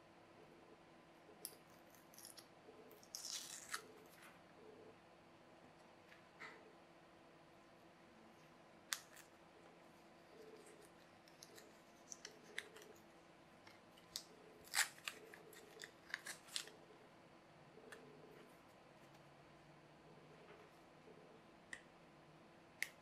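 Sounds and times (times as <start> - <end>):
plastic film peeling and crackling: 3.0 - 4.1, 14.0 - 16.8.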